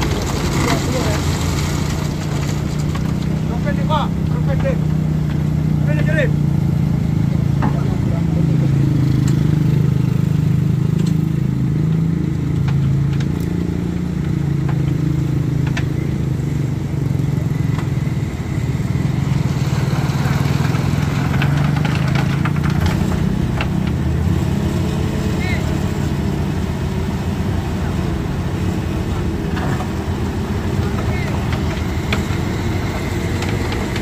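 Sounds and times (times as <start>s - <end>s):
knocks and clatter: 0.0s - 5.5s, 11.9s - 16.2s, 19.5s - 24.7s, 29.1s - 34.0s
heavy vehicle engine running: 0.0s - 34.0s.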